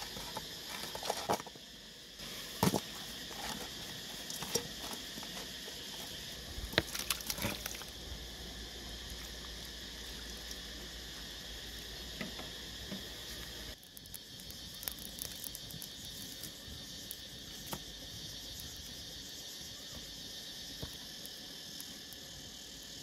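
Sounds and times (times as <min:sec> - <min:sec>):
insects chirring: 0:00.0 - 0:23.0
small fire crackling: 0:00.0 - 0:23.0.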